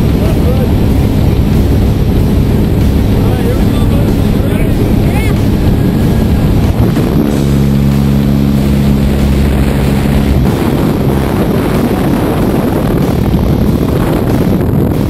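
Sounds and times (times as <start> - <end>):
plane engine and propeller droning: 0.0 - 15.0
wind rushing: 0.0 - 15.0.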